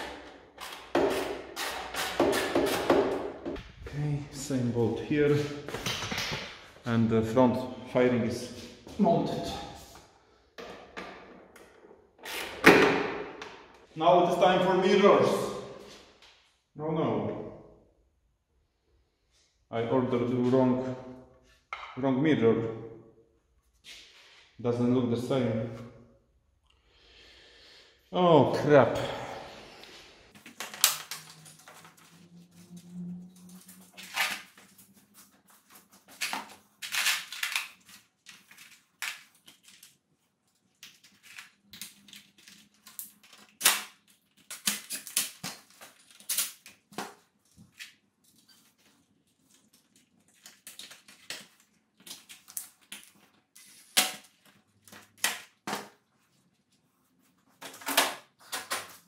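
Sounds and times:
hand tools clicking and knocking: 0.0s - 3.6s.

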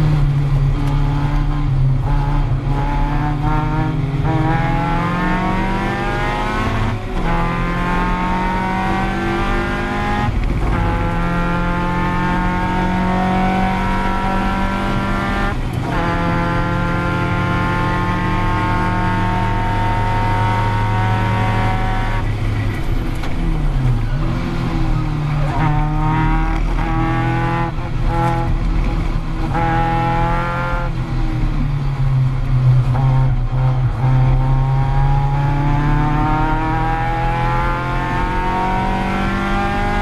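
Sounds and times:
car engine revving through gears: 0.0s - 40.0s.

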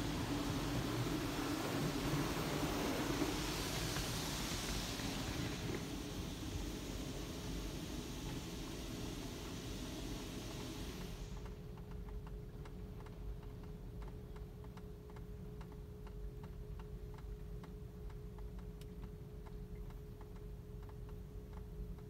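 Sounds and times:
water spraying on car body: 0.0s - 11.4s
steady hum: 0.0s - 22.0s.

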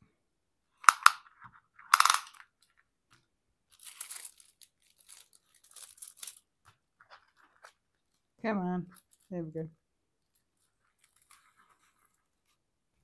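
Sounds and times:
plastic film crinkling: 3.7s - 9.4s, 10.3s - 12.6s.

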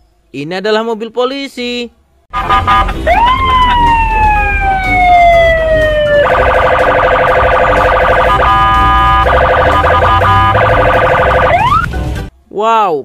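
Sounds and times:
low traffic rumble: 2.0s - 12.3s
police siren: 2.4s - 11.9s.

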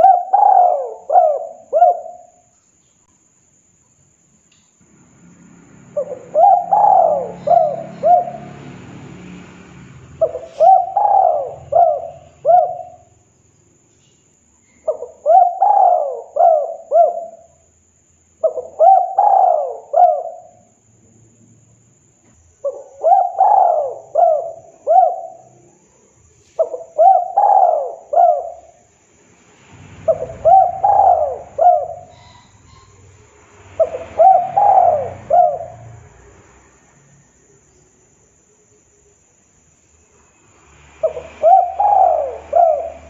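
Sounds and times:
dove cooing: 0.0s - 2.4s, 5.9s - 8.7s, 10.2s - 13.2s, 14.8s - 17.6s, 18.4s - 20.6s, 22.6s - 25.6s, 26.6s - 28.8s, 30.1s - 33.1s, 33.8s - 36.0s, 41.0s - 43.0s.

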